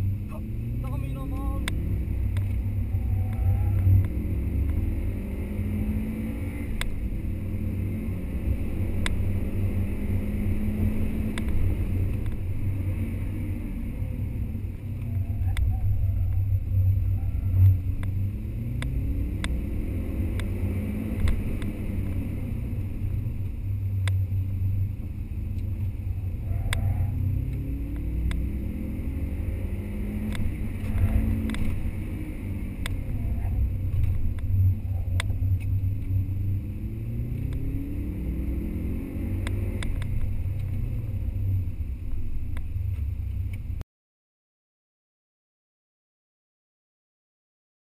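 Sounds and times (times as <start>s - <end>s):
car engine revving: 0.0s - 43.7s.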